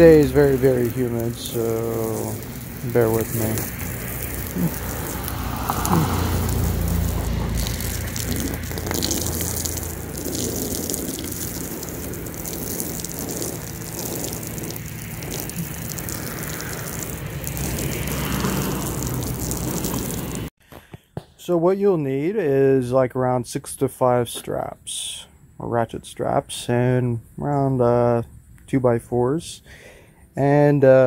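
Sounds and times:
hose spraying water on wood: 0:00.0 - 0:20.5.

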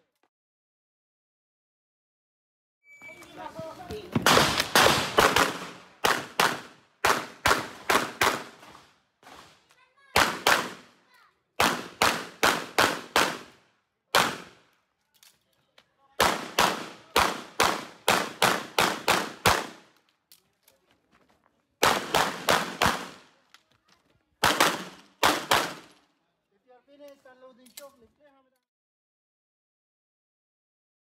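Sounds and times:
pistol shots: 0:04.2 - 0:08.7, 0:10.2 - 0:10.9, 0:11.6 - 0:14.6, 0:16.2 - 0:19.9, 0:21.8 - 0:23.3, 0:24.4 - 0:26.0.

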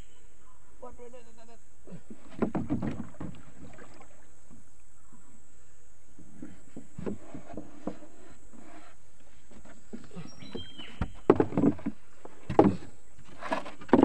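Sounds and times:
water noise: 0:02.0 - 0:14.0
knocks on wooden canoe hull: 0:02.1 - 0:03.9, 0:09.9 - 0:12.9
plastic float bumping boat: 0:02.1 - 0:04.6, 0:06.2 - 0:14.0.

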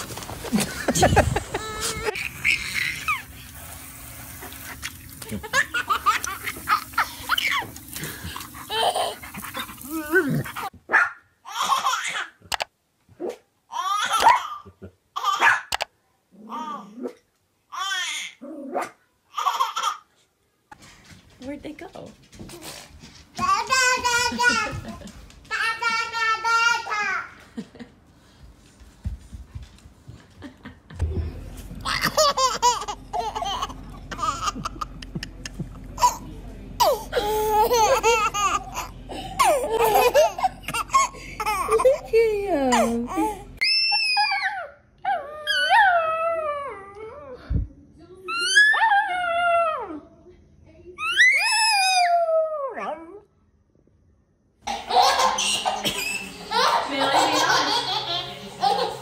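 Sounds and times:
toddler laughing: 0:00.5 - 0:03.3, 0:08.4 - 0:10.7, 0:19.3 - 0:20.1, 0:23.4 - 0:27.6, 0:31.8 - 0:43.5, 0:54.7 - 0:59.0
child's voice: 0:25.5 - 0:27.4.

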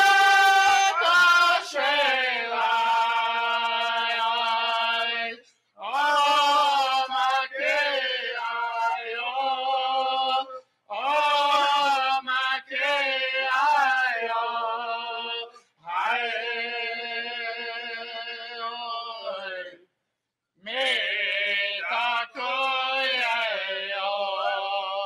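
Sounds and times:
voices singing drum-group song: 0:00.0 - 0:19.1.

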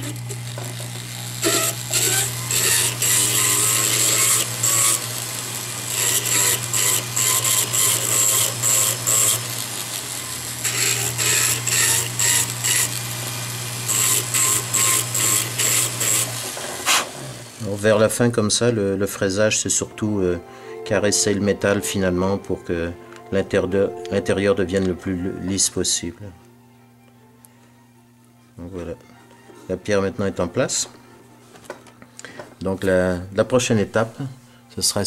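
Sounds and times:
bur grinding metal: 0:00.0 - 0:17.6
rotary tool motor hum: 0:00.0 - 0:18.0.

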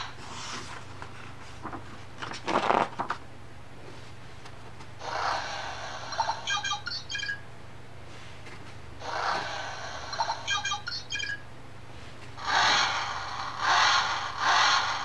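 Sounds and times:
book page rustling: 0:00.2 - 0:03.2
sound-button speaker chirps: 0:06.2 - 0:07.4, 0:10.2 - 0:11.4.

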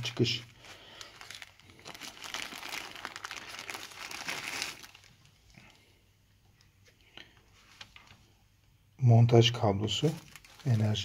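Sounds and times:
plastic wrapping crinkling: 0:00.0 - 0:05.8, 0:09.8 - 0:11.0.

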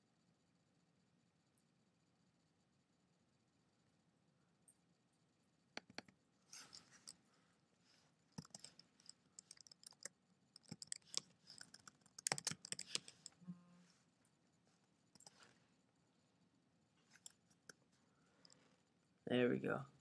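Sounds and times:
computer keyboard keystrokes: 0:05.8 - 0:06.2, 0:08.4 - 0:08.8, 0:09.4 - 0:13.4
mouse clicks: 0:05.8 - 0:06.8.

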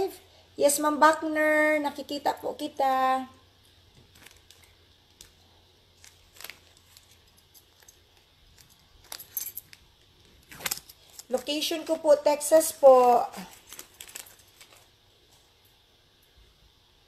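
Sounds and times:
jewelry clinking: 0:06.0 - 0:11.6.

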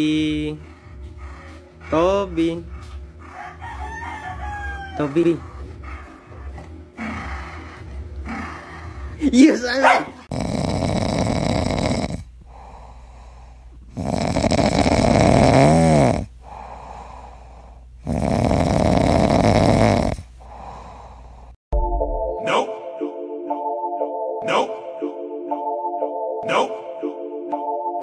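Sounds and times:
dog breathing: 0:00.3 - 0:09.3, 0:10.0 - 0:15.5, 0:16.2 - 0:21.6
dog snoring: 0:10.2 - 0:21.4.

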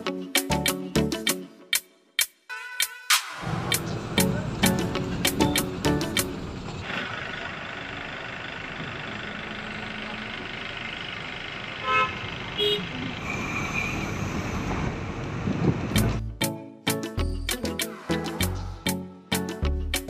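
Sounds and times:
music: 0:00.0 - 0:06.6, 0:16.0 - 0:20.0
bus engine and road noise: 0:03.4 - 0:16.5, 0:17.3 - 0:20.0
vehicle horn toots: 0:11.8 - 0:12.9.

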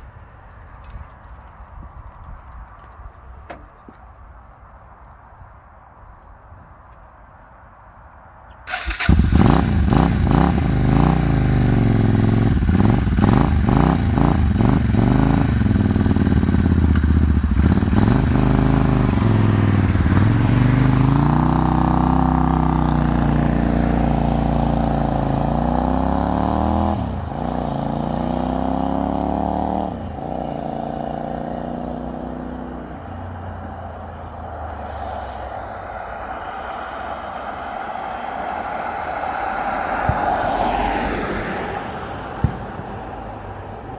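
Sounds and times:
motorcycle engine revving: 0:08.7 - 0:32.9
motorcycle accelerating away: 0:08.7 - 0:33.5.

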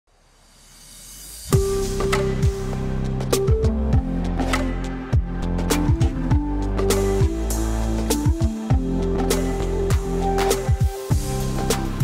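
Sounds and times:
deep kick drum: 0:03.5 - 0:04.2, 0:05.2 - 0:06.6, 0:08.3 - 0:08.9, 0:10.7 - 0:11.4.

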